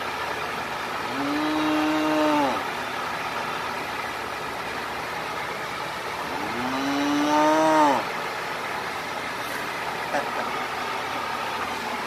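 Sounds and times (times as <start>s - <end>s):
steady background noise: 0.0s - 12.0s
cow mooing: 1.1s - 2.6s, 6.3s - 8.1s.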